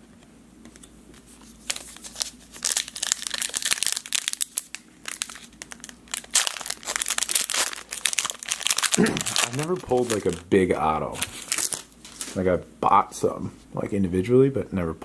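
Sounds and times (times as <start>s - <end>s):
foil wrapper crinkling and tearing: 1.6s - 10.5s, 11.1s - 12.4s.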